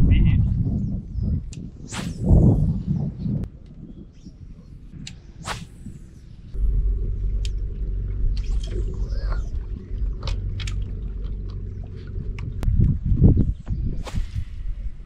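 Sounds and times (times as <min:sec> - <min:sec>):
fishing rod cast swish: 0:01.8 - 0:02.6, 0:05.4 - 0:06.2, 0:13.9 - 0:14.9
low rumble: 0:04.7 - 0:15.0.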